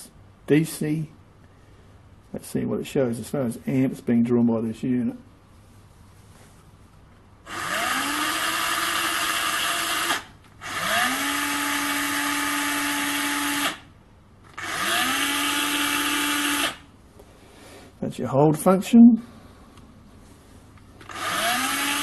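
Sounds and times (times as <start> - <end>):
cordless drill motor whine: 7.5 - 13.9, 14.5 - 16.9, 21.0 - 22.0.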